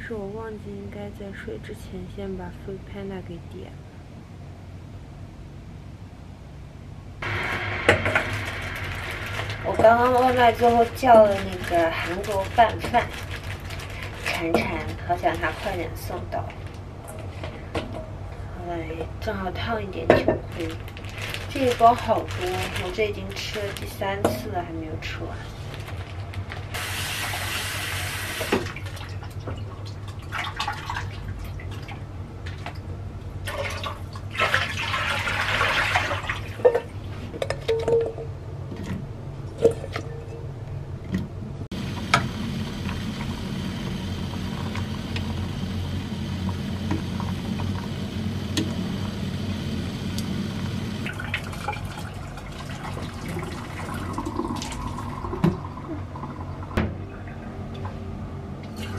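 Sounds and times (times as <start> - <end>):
water heating hiss: 7.2 - 12.9, 26.7 - 28.8, 41.7 - 56.6
water poured into sink: 33.5 - 36.6, 50.2 - 56.3.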